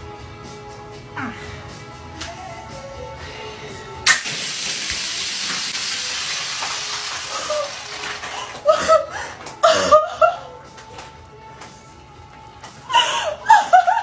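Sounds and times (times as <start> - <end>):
gas hissing out: 4.0 - 8.5
plastic bottle bursting open: 4.1 - 5.8.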